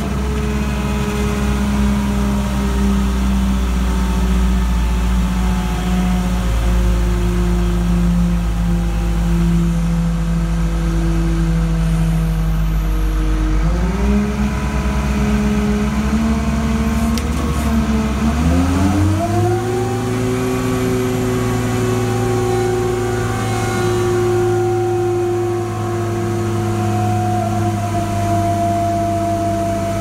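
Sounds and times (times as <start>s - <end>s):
crane engine running: 0.0s - 30.0s.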